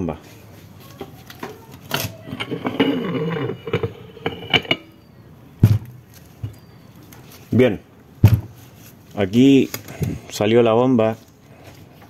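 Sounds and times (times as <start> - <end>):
metallic scraping rub: 1.9 - 5.0
heavy knock of metal part set down: 5.6 - 6.6, 8.2 - 8.6.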